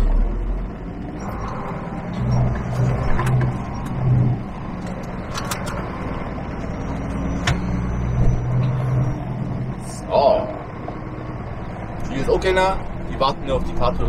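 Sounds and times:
truck engine running: 0.0s - 14.0s.

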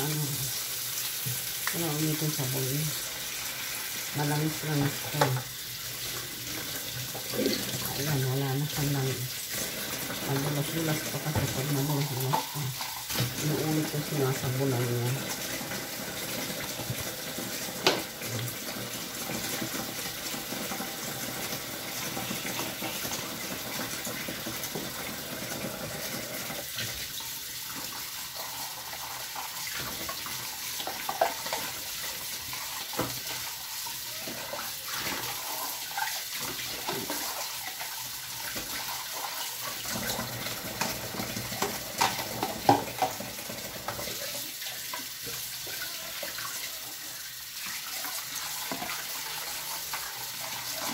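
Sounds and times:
tap running into metal sink: 16.6s - 18.3s, 39.9s - 44.1s.

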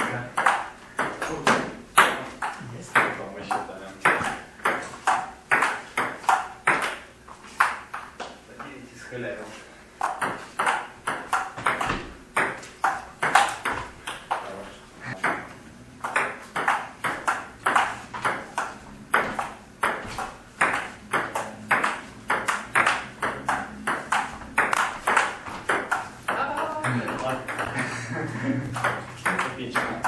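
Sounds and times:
table tennis ball clicking: 10.0s - 14.4s, 15.2s - 27.7s, 28.7s - 30.0s.

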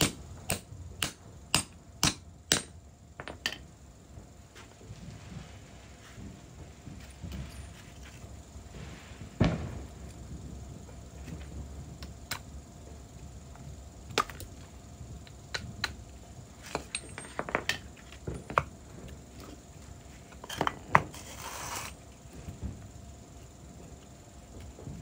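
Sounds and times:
tools and metal parts knocking: 16.6s - 18.7s.

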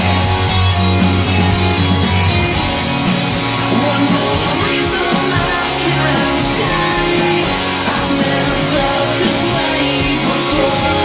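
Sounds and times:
electric bass: 0.0s - 11.0s
electric guitar: 0.0s - 11.0s
person singing: 2.9s - 11.0s.

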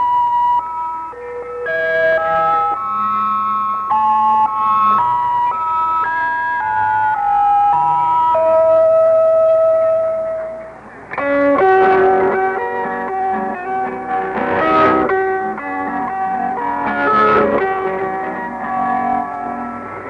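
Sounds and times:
plucked string music over radio: 7.7s - 20.0s.

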